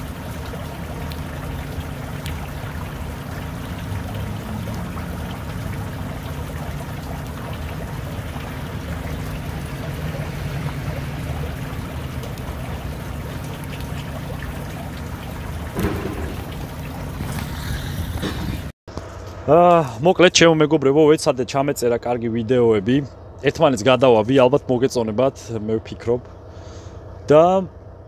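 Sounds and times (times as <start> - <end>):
brief knock: 15.8 - 16.6.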